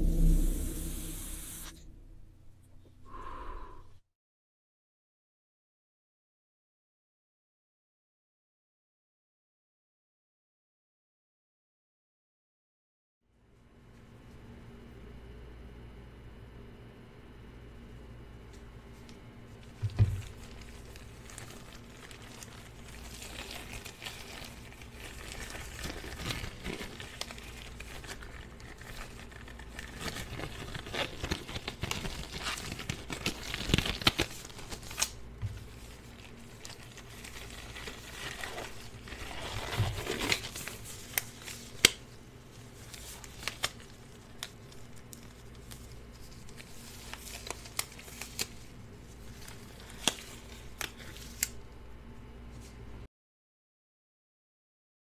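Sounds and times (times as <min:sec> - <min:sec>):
disposable gloves crinkling: 0:18.6 - 0:51.7
glove snaps: 0:41.1 - 0:42.0.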